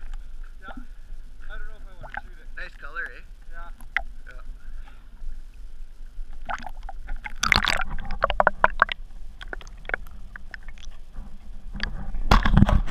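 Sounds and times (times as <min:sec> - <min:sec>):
underwater bubbling pops: 0:02.0 - 0:02.4, 0:03.7 - 0:04.3, 0:06.3 - 0:11.0
water splash: 0:02.0 - 0:02.4, 0:06.3 - 0:11.0.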